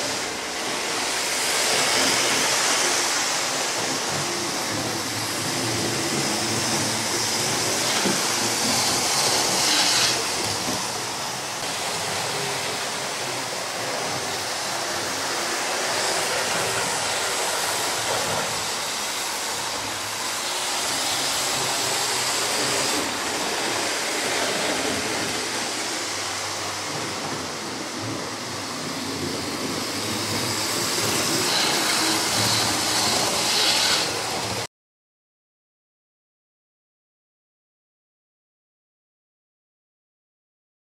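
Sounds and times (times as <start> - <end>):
model train motors whirring: 0.0 - 28.2, 29.0 - 34.7.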